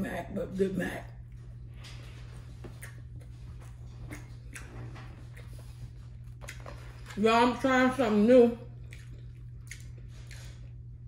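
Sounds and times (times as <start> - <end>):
steady low hum: 0.0 - 11.0
quiet chewing: 1.2 - 7.2, 8.6 - 11.0.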